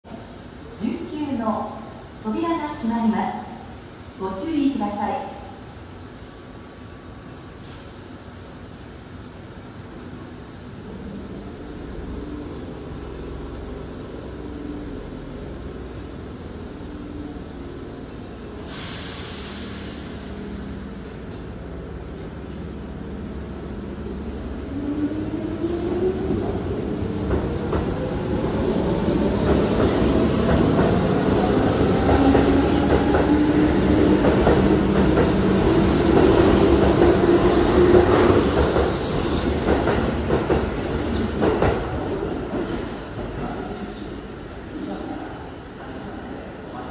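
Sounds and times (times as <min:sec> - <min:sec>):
train wheels rumbling on rails: 0:10.9 - 0:43.7
train brake hiss: 0:18.6 - 0:21.3.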